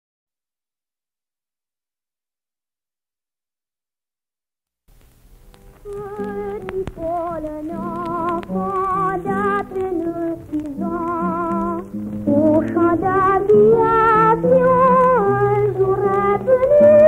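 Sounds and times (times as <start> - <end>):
piano accompaniment: 5.4 - 17.0
boy singing with vibrato: 5.9 - 17.0.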